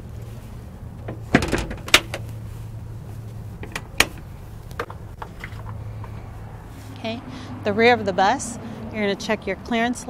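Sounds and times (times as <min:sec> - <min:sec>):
steady low hum: 0:00.0 - 0:09.6
latch click: 0:01.0 - 0:02.3, 0:03.6 - 0:05.0
door bang: 0:01.1 - 0:02.2
metal door clattering shut: 0:01.1 - 0:02.2.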